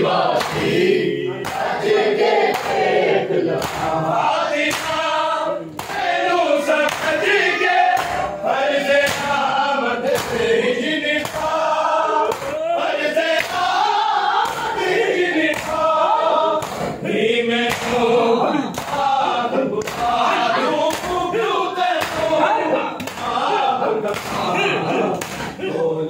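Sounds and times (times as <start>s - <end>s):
men chanting in unison: 0.0s - 26.0s
open-hand slaps on chest: 0.4s - 0.7s, 2.5s - 2.8s, 3.6s - 3.9s, 4.7s - 5.0s, 5.8s - 6.0s, 6.9s - 7.2s, 9.0s - 9.4s, 10.1s - 10.4s, 11.2s - 11.5s, 13.4s - 13.7s, 15.5s - 15.8s, 16.6s - 17.0s, 17.7s - 18.1s, 19.8s - 20.2s, 22.0s - 22.3s.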